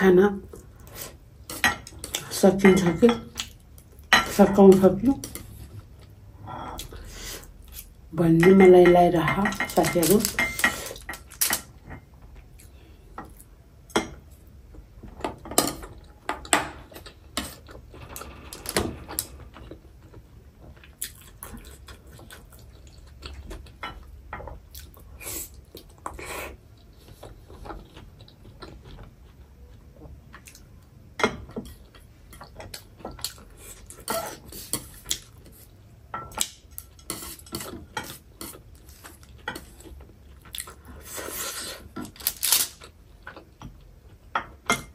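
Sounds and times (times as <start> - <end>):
soft chewing: 19.6 - 30.9.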